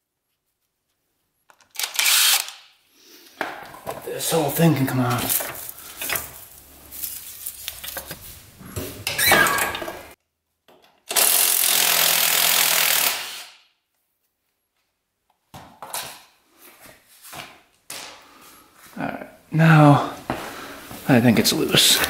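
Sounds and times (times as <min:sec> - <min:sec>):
power tool running: 0:11.1 - 0:13.6.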